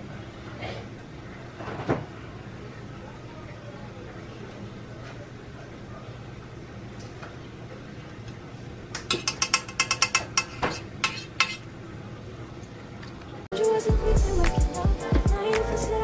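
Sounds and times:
steady low hum: 13.9s - 16.0s.

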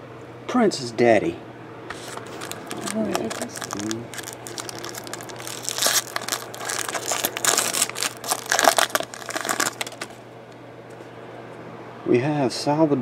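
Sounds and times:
foil wrapper crinkling: 1.9s - 10.2s.

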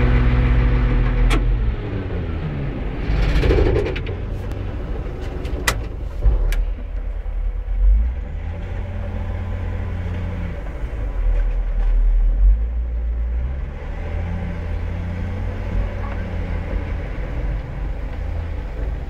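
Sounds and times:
diesel engine working: 0.0s - 19.0s.

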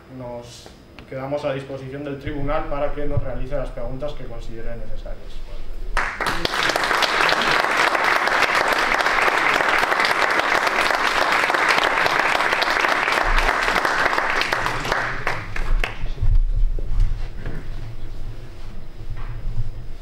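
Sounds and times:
audience applauding: 6.0s - 16.2s.

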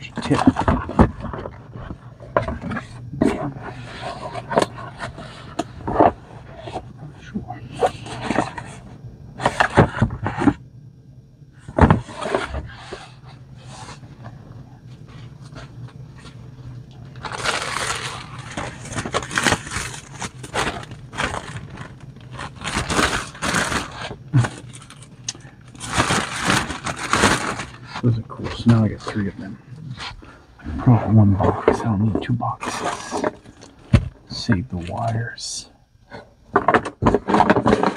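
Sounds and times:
plastic mailer bag crinkling: 17.1s - 29.5s.

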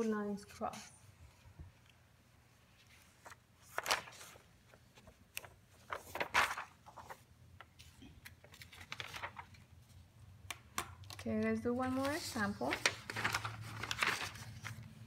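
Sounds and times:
paper rustling on desk: 2.6s - 10.0s, 11.0s - 15.0s.

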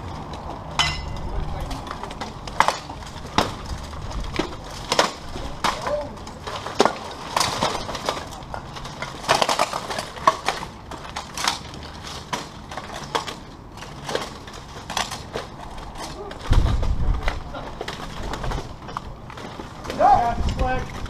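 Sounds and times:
plate armour clanking: 0.8s - 1.3s.

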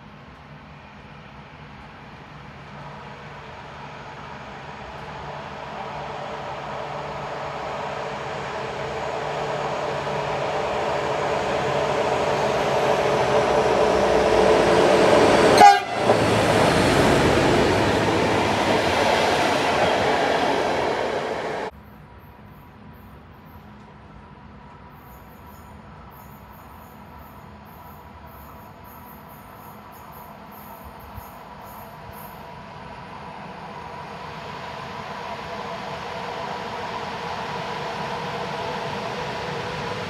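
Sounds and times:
diesel locomotive engine: 0.0s - 40.0s
train wheels rumbling: 1.0s - 21.7s.

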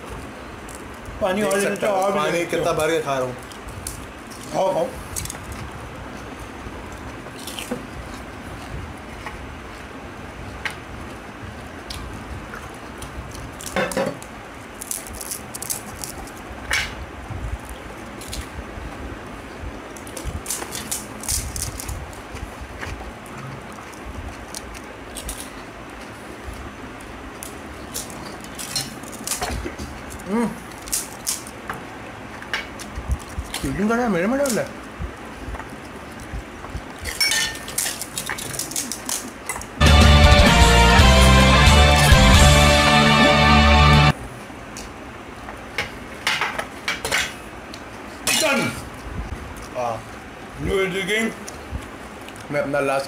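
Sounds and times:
background noise: 0.0s - 53.0s
steady background hiss: 0.0s - 53.0s
crunching of hollow shells: 2.8s - 9.3s, 11.8s - 17.0s, 19.9s - 39.8s
crisp shells crackling: 13.4s - 16.5s, 19.9s - 22.3s, 23.1s - 25.8s, 27.1s - 31.6s, 36.9s - 39.8s.

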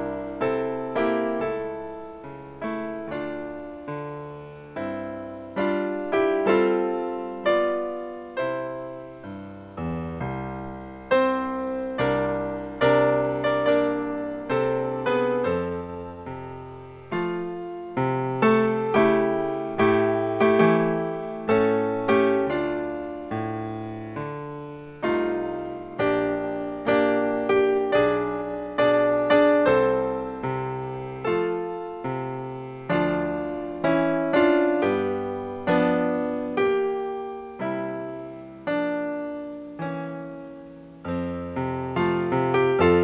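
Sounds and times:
solo piano music: 0.0s - 43.0s.

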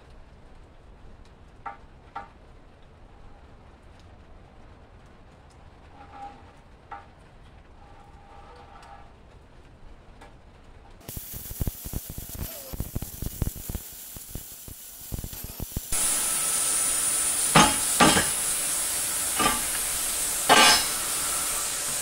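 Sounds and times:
plasma cutter hissing: 11.0s - 22.0s.

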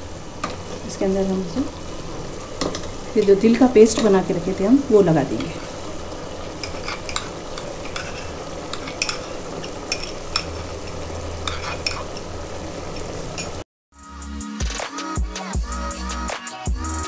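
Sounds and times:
spoon scraping and clinking bowl: 6.6s - 10.6s, 11.4s - 12.2s.

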